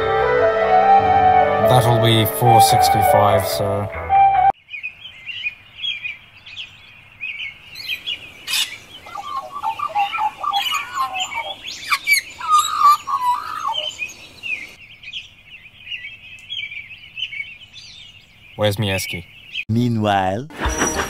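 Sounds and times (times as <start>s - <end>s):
birds chirping: 1.6s - 19.9s, 20.5s - 21.0s
low warbling bird call: 7.8s - 14.8s.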